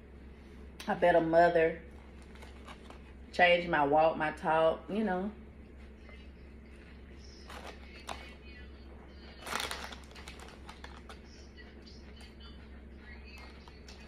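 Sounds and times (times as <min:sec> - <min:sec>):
chip bag crinkling: 0:02.0 - 0:03.2, 0:07.4 - 0:08.4, 0:09.2 - 0:11.5.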